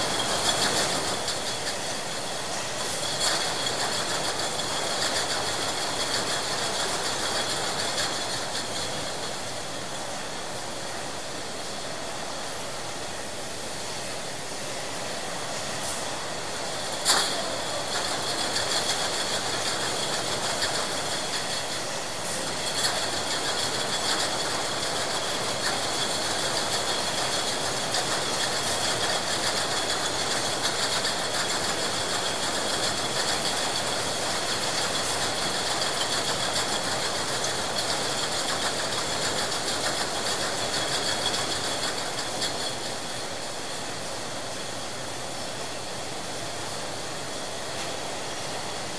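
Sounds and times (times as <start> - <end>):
bottling machine clatter: 0.0 - 9.4, 16.8 - 43.2.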